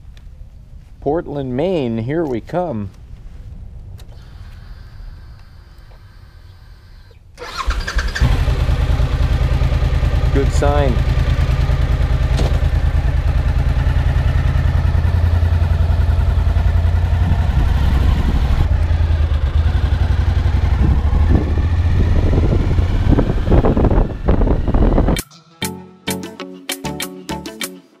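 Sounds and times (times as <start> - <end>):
motorcycle engine running: 8.0 - 25.2.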